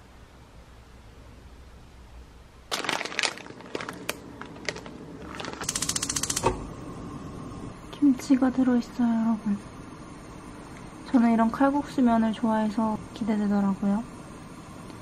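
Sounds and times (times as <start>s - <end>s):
plastic packet crinkling: 2.7s - 6.4s
gas stove igniter clicking: 5.6s - 6.7s
gas burner lighting thump: 6.3s - 6.8s.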